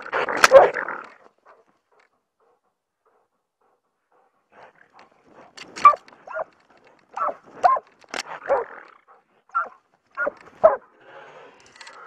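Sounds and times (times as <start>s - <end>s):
dog barking: 0.4s - 0.8s, 5.8s - 6.5s, 7.1s - 10.9s.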